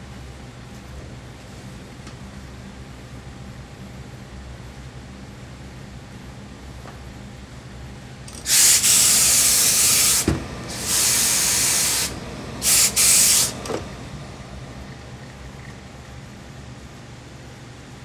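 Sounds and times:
steam iron hissing bursts: 8.3 - 13.7.

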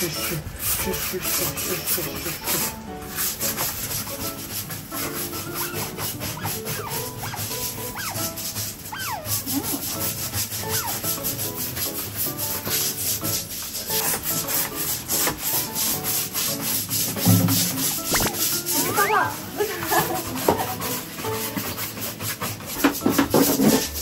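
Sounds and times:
scratchy rubbing: 0.0 - 24.0
otter squeaky chirps: 5.6 - 11.2, 18.0 - 19.4.

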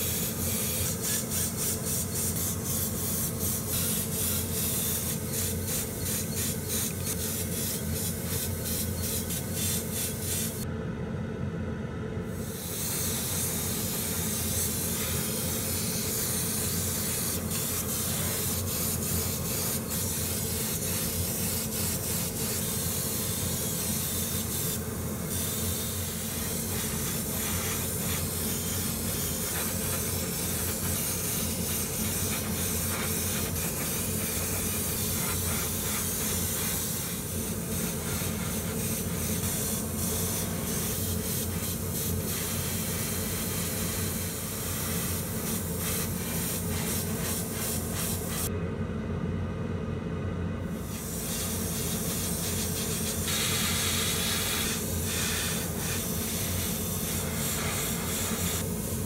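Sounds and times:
airbrush hissing: 0.0 - 10.6, 12.3 - 48.5, 50.8 - 59.0
steady low hum: 0.0 - 59.0.

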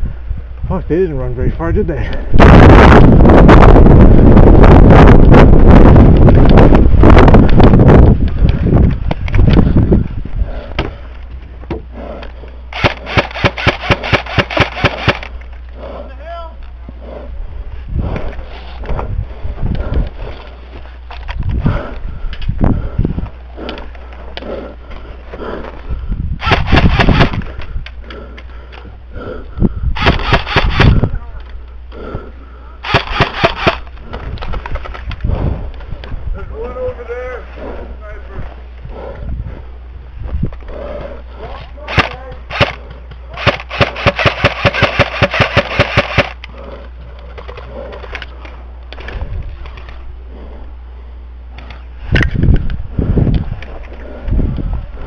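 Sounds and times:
airsoft rifle firing sharp cracks: 12.8 - 15.3, 26.4 - 27.4, 30.0 - 31.0, 32.8 - 33.8, 41.9 - 42.8, 43.4 - 46.4
airsoft gunfire cracks: 30.0 - 30.9, 32.9 - 33.8.

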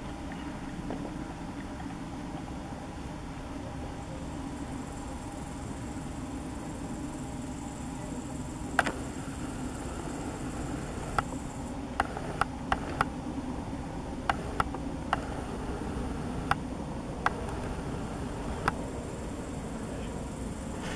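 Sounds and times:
steady background hum: 0.0 - 20.9
sharp short clicks: 8.8 - 9.1, 12.0 - 13.1, 14.3 - 16.6.

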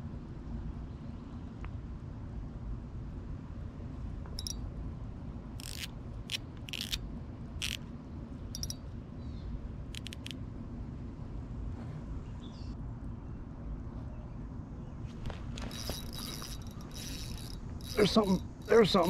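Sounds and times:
fishing reel clicks and scrapes: 5.6 - 7.0, 7.6 - 7.8, 8.6 - 8.8, 9.9 - 10.4, 15.3 - 19.0.

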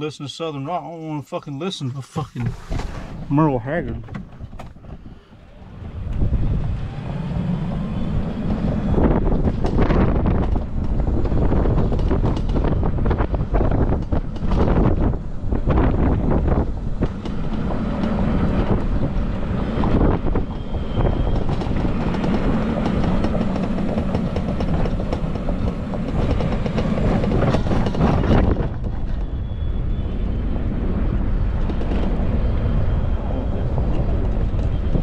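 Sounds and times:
golf cart driving on concrete: 2.4 - 29.8.

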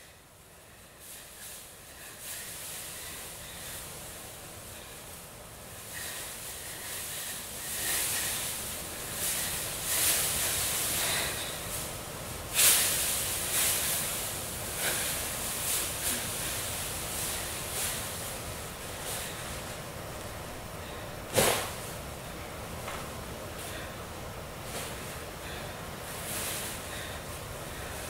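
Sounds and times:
sharp hissed exhales: 5.8 - 11.9, 12.5 - 18.4.

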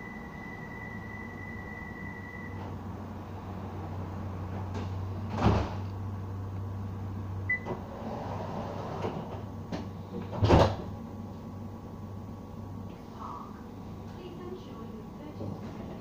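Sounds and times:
tram hum: 0.0 - 5.3.

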